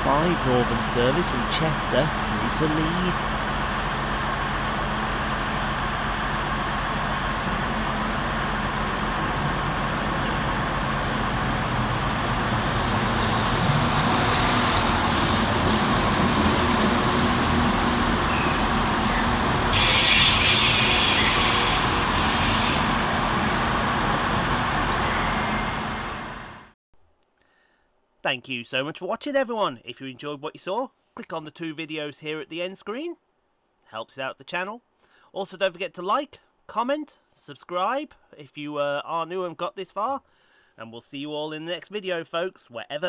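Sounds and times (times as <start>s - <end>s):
diesel train engines: 0.0s - 26.8s
loud air hiss: 13.0s - 16.0s, 17.6s - 23.2s.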